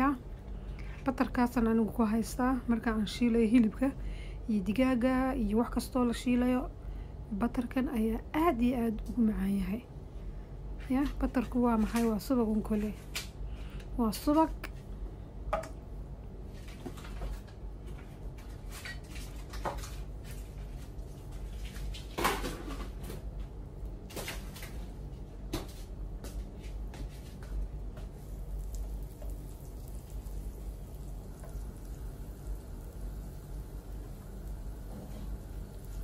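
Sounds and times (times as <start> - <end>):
low steady hum: 0.0 - 36.0
butter sizzling in wok: 28.1 - 36.0.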